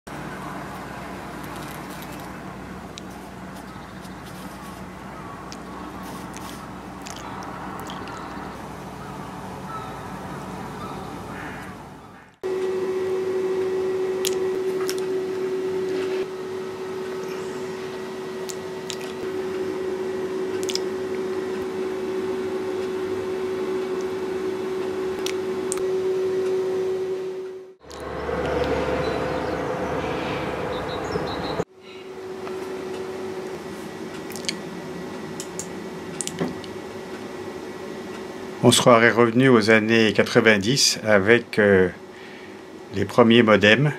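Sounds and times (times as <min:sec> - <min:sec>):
outdoor background noise: 0:00.1 - 0:43.9
steady machine hum: 0:00.1 - 0:43.9.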